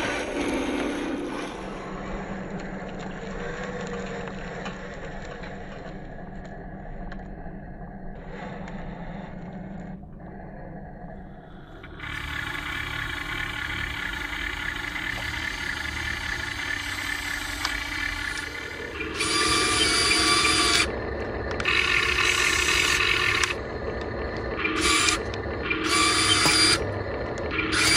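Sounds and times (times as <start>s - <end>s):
toy truck motor and gears whining: 0.0s - 6.8s, 8.2s - 27.9s.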